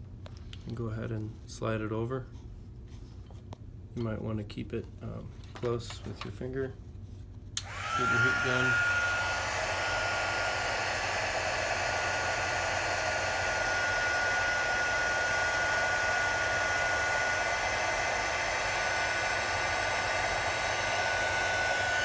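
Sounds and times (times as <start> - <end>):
heat gun fan blowing: 3.9 - 22.0
steady high whine: 7.6 - 22.0.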